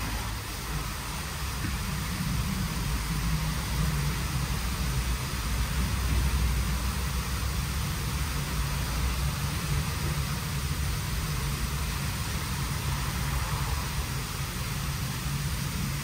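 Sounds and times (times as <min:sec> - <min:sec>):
car wash rushing noise: 0:00.0 - 0:16.0.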